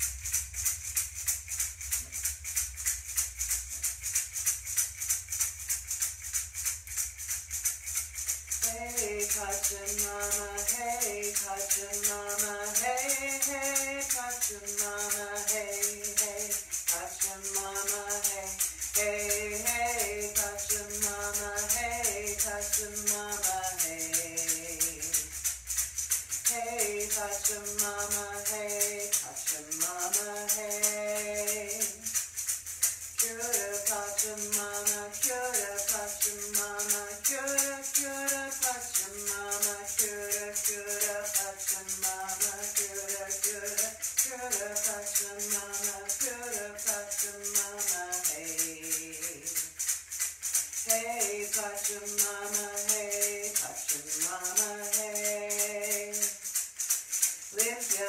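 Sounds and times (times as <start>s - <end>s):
hand-held shaker rhythm: 0.0s - 58.0s
woman singing wordless chant: 8.6s - 25.4s, 26.4s - 32.2s, 33.2s - 49.8s, 50.8s - 56.4s, 57.5s - 58.0s.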